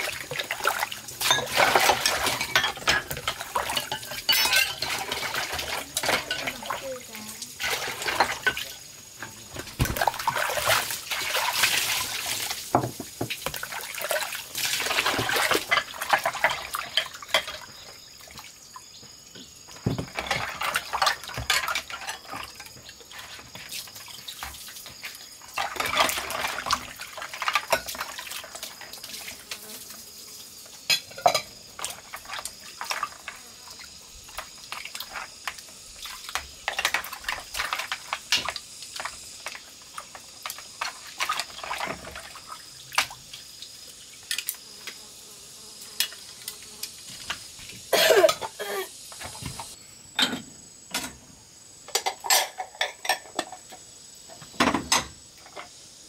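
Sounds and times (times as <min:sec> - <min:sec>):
water sloshing and splashing: 0:00.0 - 0:18.6, 0:19.7 - 0:29.9, 0:31.1 - 0:44.5
chopsticks and bowls clacking: 0:02.4 - 0:05.2.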